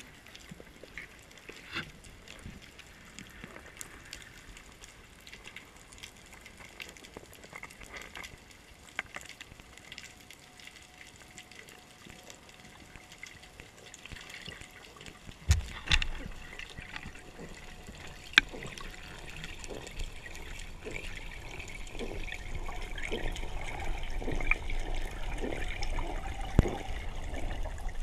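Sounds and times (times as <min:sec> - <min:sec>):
small clicks and ticks: 0:00.0 - 0:28.0.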